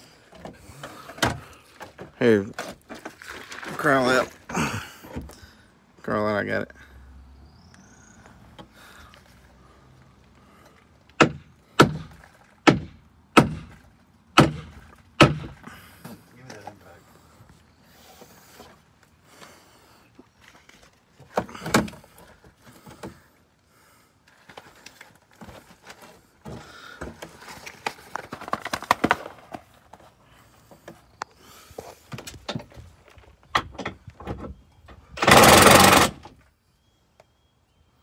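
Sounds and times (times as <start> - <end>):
impact wrench burst: 35.2 - 36.3.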